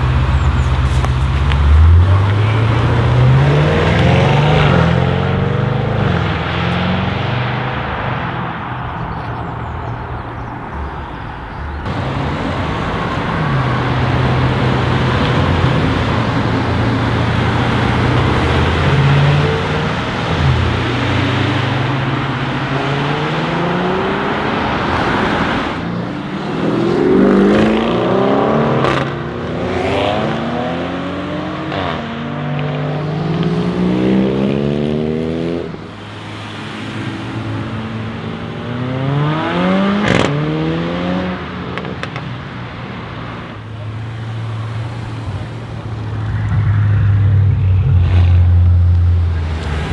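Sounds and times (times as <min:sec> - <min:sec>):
car engine accelerating with upshifts: 0:13.5 - 0:42.2.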